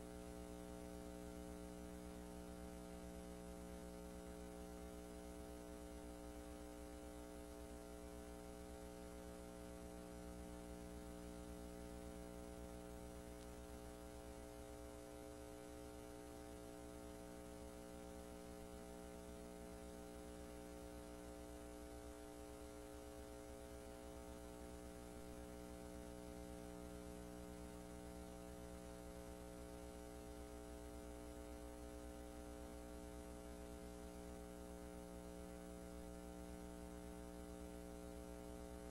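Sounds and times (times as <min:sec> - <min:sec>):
electrical hum with hiss: 0:00.0 - 0:38.9.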